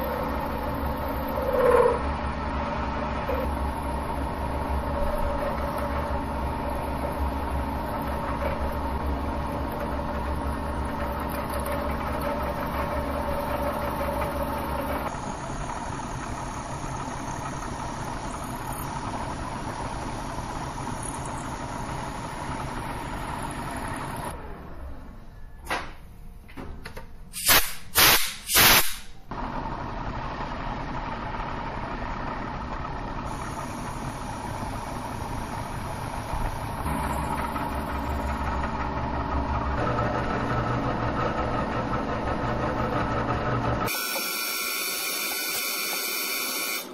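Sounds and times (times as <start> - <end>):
end mill cutting steel: 0.0 - 24.4, 33.2 - 46.9
milling machine motor hum: 0.0 - 25.3, 29.3 - 46.9
loud harsh cutting bursts: 43.9 - 46.9.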